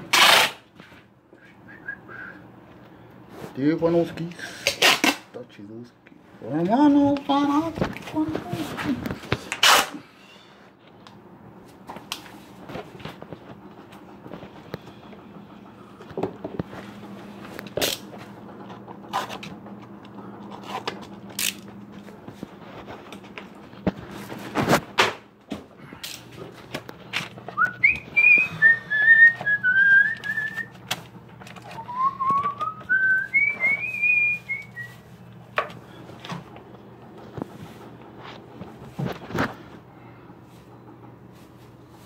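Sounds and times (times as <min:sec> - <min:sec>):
person whistling a tune: 0:01.4 - 0:02.5, 0:27.6 - 0:30.7, 0:31.7 - 0:35.0.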